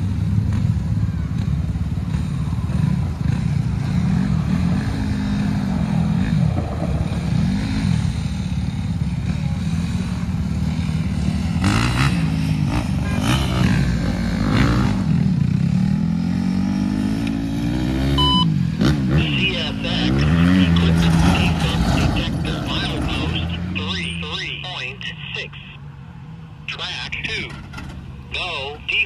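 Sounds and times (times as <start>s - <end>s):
cars driving by: 0.0s - 29.0s.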